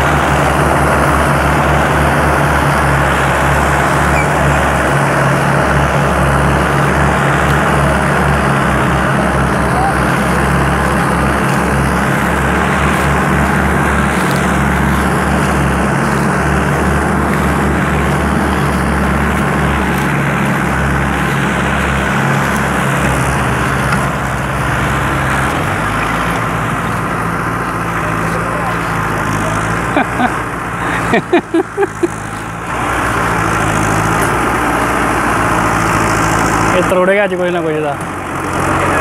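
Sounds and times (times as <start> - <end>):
tractor engines under load: 0.0 - 39.0.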